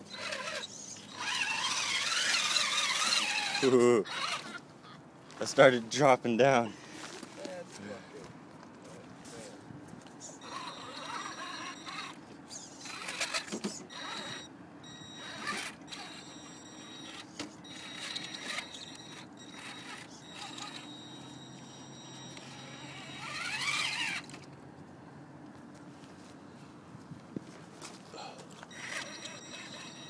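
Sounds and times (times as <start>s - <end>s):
electric toy car motor whining: 0.0s - 4.6s, 10.4s - 24.4s, 28.6s - 30.0s.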